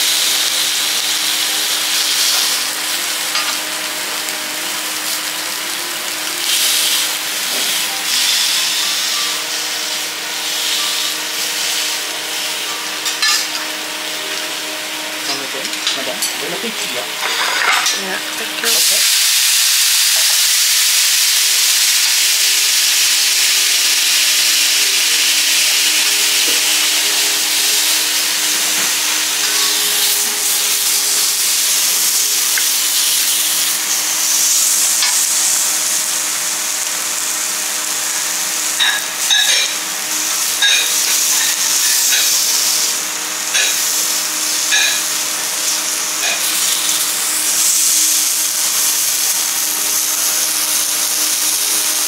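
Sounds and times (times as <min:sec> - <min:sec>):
water sizzling on hot griddle: 0:00.0 - 0:52.0
metal utensils scraping steel plate: 0:13.0 - 0:13.6, 0:17.2 - 0:18.1.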